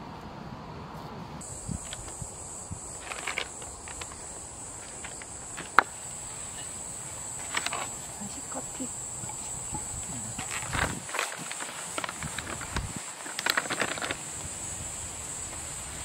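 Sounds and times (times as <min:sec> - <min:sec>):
gear rustling in a backpack: 0:01.4 - 0:06.6, 0:07.3 - 0:08.2, 0:10.1 - 0:14.6
high-pitched insect trill: 0:01.4 - 0:16.0.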